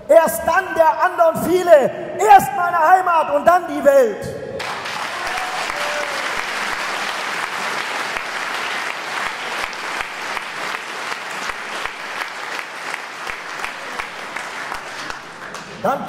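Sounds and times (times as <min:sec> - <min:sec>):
audience applauding: 0:04.6 - 0:15.8.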